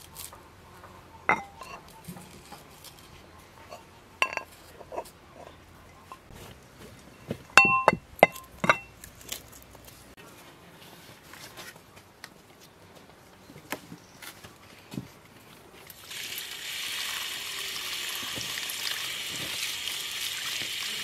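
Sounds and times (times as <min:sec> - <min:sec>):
brass mortar clinking and ringing: 0:01.2 - 0:02.6, 0:03.7 - 0:06.3, 0:07.2 - 0:09.0.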